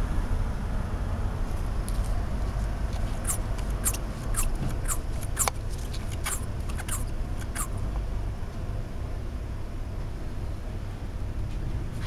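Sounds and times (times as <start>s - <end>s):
short high squeaks: 3.0s - 7.8s.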